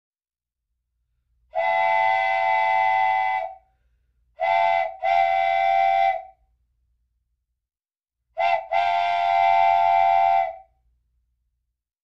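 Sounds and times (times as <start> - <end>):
train horn blasts: 1.6 - 3.5, 4.4 - 6.2, 8.4 - 10.6.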